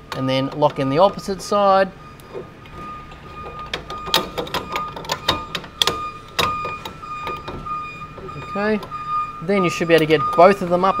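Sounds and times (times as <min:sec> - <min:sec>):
faint steady high tone: 0:00.1 - 0:11.0
metallic clicks and knocks: 0:02.2 - 0:09.0.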